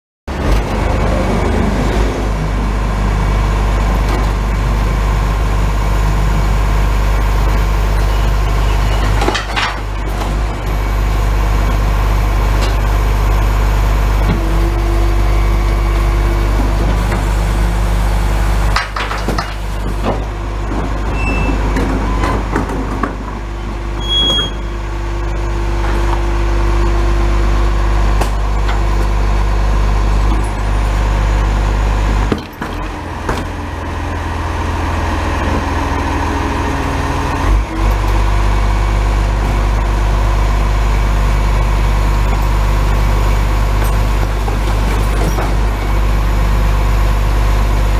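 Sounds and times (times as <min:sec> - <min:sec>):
garbage truck engine running: 0:00.3 - 0:47.9
hydraulic whine: 0:03.3 - 0:47.9
bins banging: 0:18.7 - 0:23.8.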